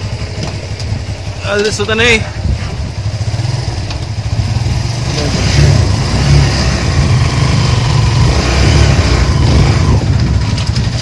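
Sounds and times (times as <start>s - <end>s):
motorcycle engine pulling away: 2.8s - 11.0s.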